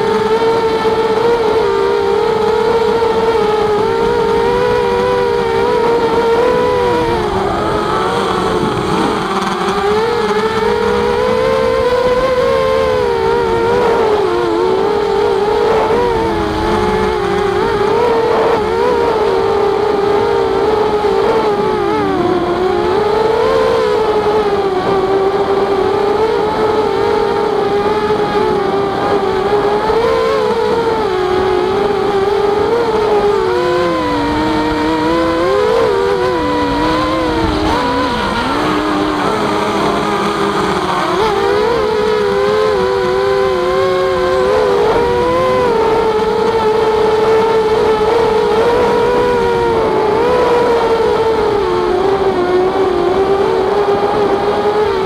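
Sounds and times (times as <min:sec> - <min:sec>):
quadcopter motors whining: 0:00.0 - 0:55.0.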